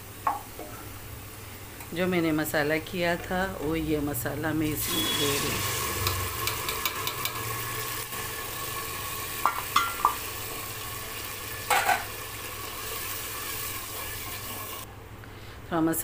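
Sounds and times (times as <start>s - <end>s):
paste sizzling in hot oil: 4.7s - 14.9s.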